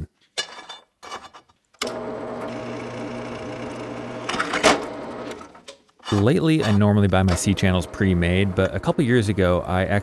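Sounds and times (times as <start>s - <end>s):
drill press motor humming: 1.8s - 5.6s.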